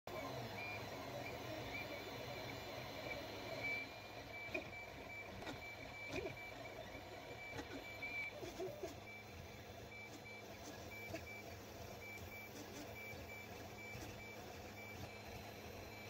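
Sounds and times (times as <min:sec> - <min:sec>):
printer stepper motors whining: 0:00.1 - 0:16.0.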